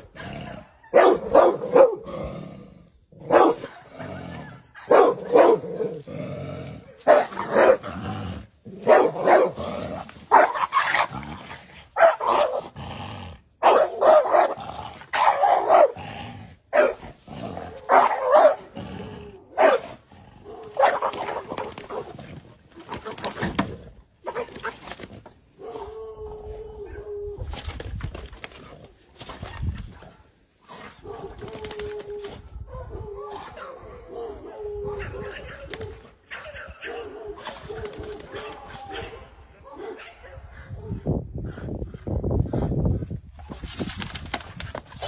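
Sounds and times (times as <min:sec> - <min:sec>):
dog barking and growling: 0:00.0 - 0:27.5, 0:29.9 - 0:41.1.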